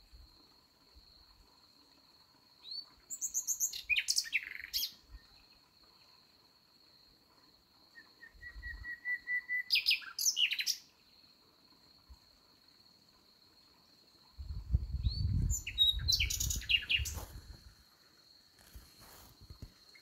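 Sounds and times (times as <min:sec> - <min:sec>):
nightingale singing: 0:02.6 - 0:05.6, 0:07.9 - 0:11.0, 0:14.4 - 0:17.6.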